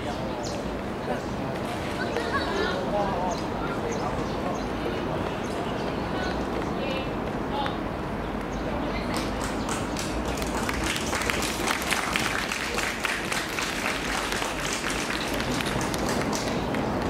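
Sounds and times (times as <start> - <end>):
voices: 0.0 - 17.0
spectators clapping: 9.0 - 17.0.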